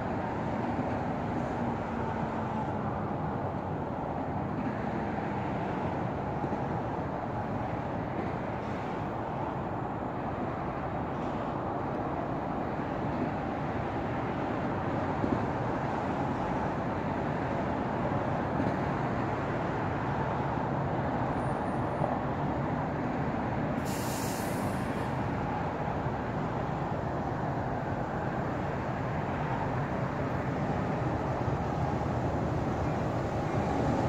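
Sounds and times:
distant diesel locomotive rumble: 0.0s - 34.0s
brief hiss: 23.8s - 25.2s.

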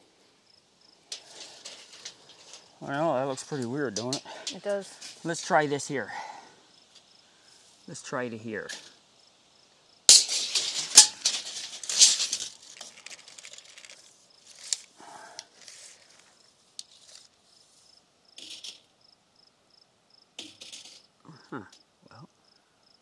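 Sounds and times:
crickets chirping: 0.0s - 23.0s
rattling and scraping: 1.1s - 5.6s, 10.1s - 17.3s, 20.4s - 21.1s.

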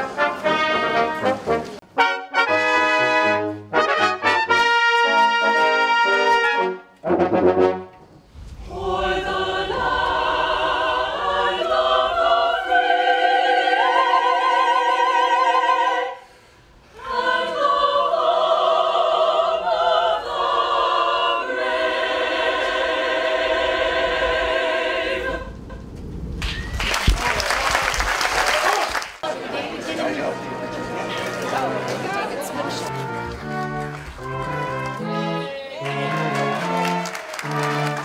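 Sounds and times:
brass ensemble chord: 0.0s - 8.2s, 29.8s - 38.0s
choir singing slowly: 8.4s - 25.8s.

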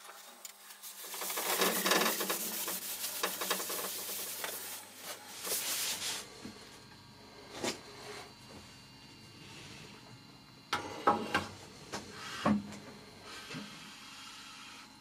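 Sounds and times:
paper towel rubbing on metal: 0.1s - 6.2s.

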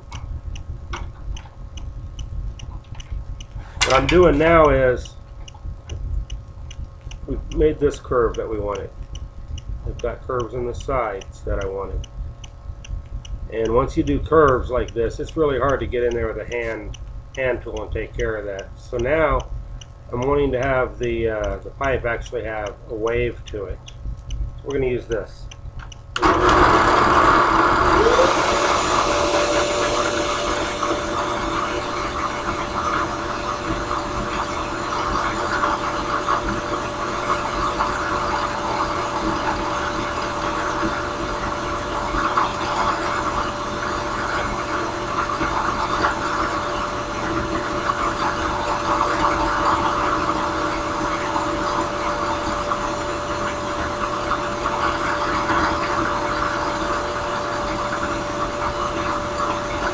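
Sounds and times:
drill press motor hum: 25.8s - 59.9s.

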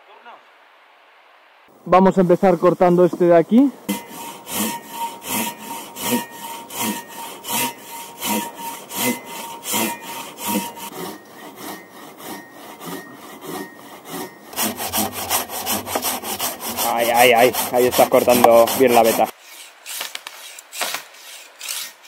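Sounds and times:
hand saw cutting branch: 2.4s - 22.0s.

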